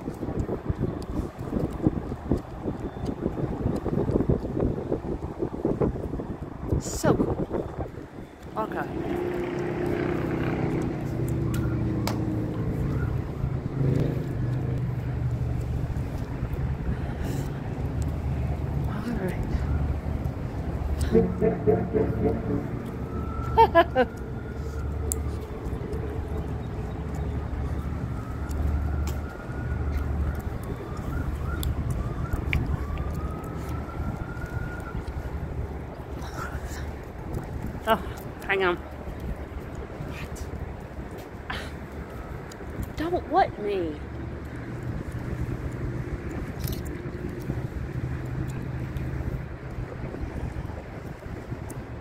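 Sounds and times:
wind buffeting microphone: 0.0s - 52.0s
distant engine drone: 8.5s - 31.0s.

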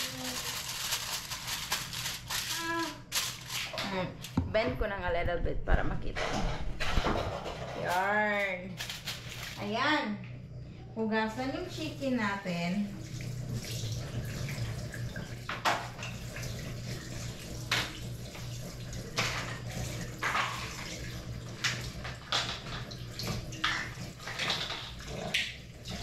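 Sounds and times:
steady low hum: 0.0s - 22.2s
kitchen tap running into sink: 11.7s - 26.0s
splashes and clunks: 17.6s - 26.0s.

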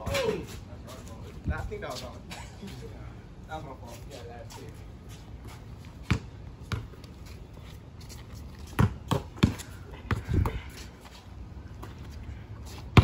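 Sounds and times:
basketball bouncing on concrete: 5.4s - 7.1s, 8.6s - 10.8s.

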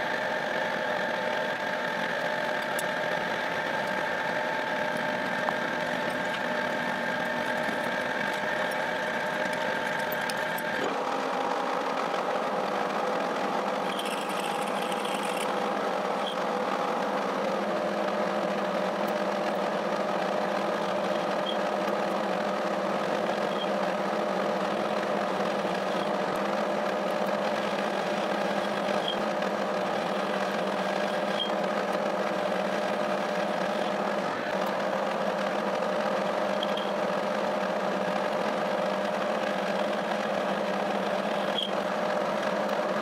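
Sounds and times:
lathe gearbox hum: 0.0s - 43.0s.

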